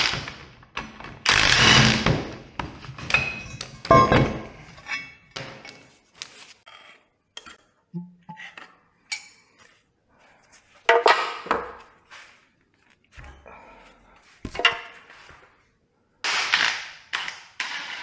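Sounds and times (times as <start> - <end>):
metal tools clinking and clattering: 3.0 - 6.9.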